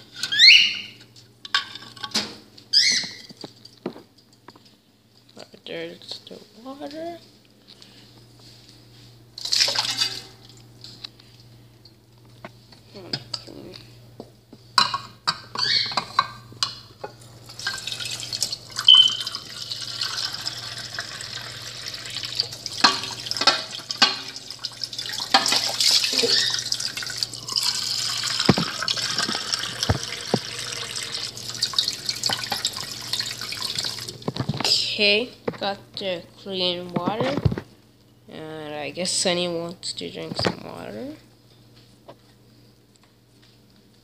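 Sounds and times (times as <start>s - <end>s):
tap water splashing into dish: 22.4s - 24.4s, 25.0s - 26.8s, 27.6s - 34.0s.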